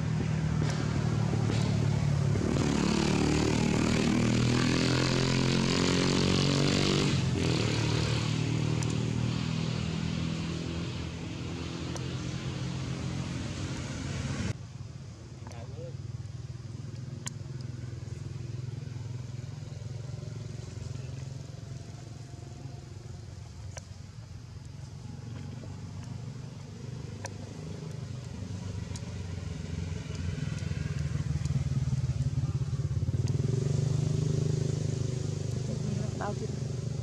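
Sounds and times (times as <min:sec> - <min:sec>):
faint ticks: 0:16.8 - 0:18.2, 0:23.5 - 0:29.1.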